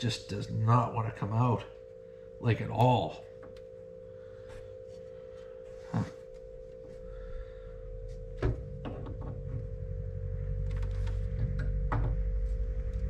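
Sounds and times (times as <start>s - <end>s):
steady hum: 0.0s - 13.0s.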